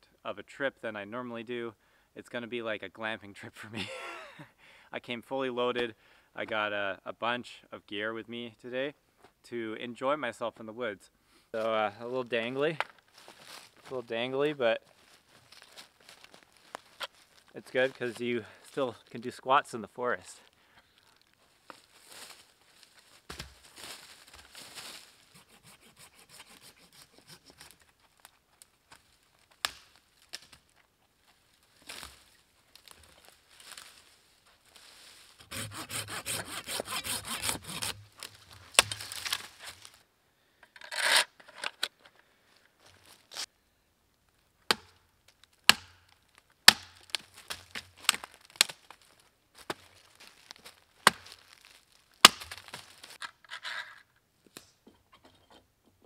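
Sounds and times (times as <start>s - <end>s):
hand saw cutting sapling: 25.3s - 27.9s, 35.4s - 39.8s
wood cracking and snapping: 29.4s - 30.8s, 38.1s - 40.0s, 44.7s - 53.2s.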